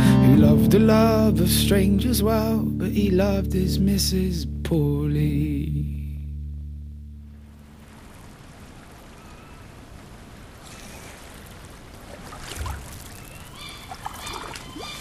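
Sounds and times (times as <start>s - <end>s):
noisy wash like running water: 7.4s - 15.0s.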